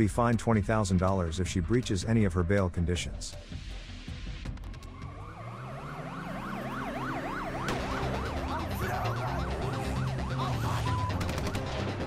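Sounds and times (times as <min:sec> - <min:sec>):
background music: 0:00.0 - 0:12.0
electronic siren wailing and yelping: 0:04.8 - 0:12.0.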